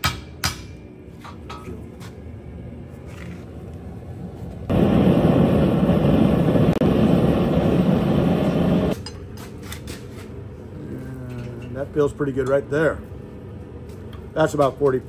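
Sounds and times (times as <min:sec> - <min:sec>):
forge rushing noise: 0:04.7 - 0:09.0.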